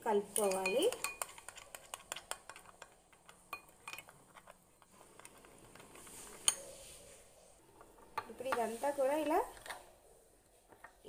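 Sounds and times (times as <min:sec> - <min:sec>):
spoon scraping against a bowl: 0:00.3 - 0:07.2
spoon clinking: 0:00.4 - 0:04.1.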